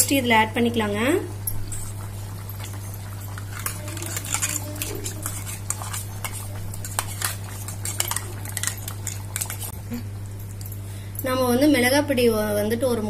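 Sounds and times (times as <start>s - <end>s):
steady low hum: 0.0s - 13.0s
spoon scraping metal pan: 2.6s - 9.8s.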